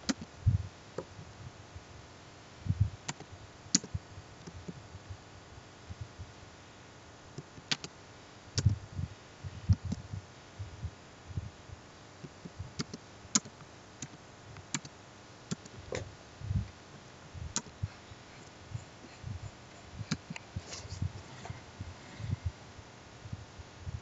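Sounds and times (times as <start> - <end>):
soft low thumps: 0.4 - 1.6, 2.6 - 3.0, 8.6 - 11.6, 15.7 - 24.0.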